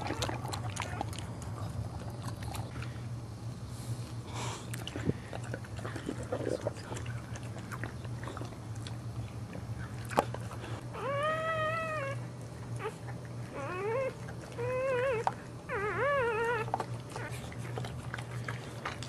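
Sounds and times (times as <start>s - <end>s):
wet licking sounds: 4.7s - 10.8s
puppy crying: 10.9s - 17.4s.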